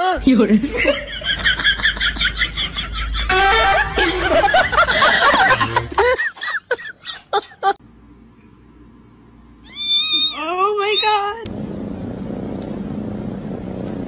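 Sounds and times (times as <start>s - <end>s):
people laughing: 0.6s - 7.8s.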